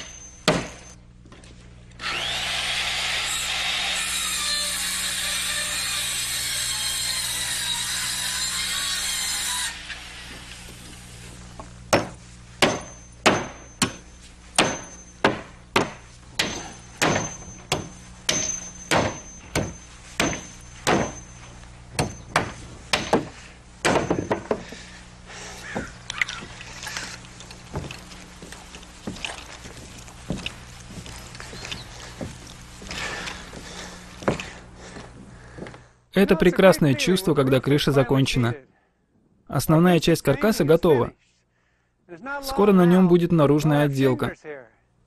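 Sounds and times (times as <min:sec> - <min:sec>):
circular saw cutting: 0:02.0 - 0:11.2
hammer driving nails: 0:12.0 - 0:21.3, 0:22.0 - 0:24.7.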